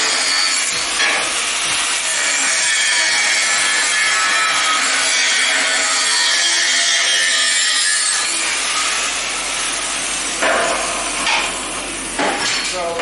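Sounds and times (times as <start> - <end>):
angle grinder cutting steel: 0.0 - 12.2
sharp metal knocks: 10.4 - 11.5.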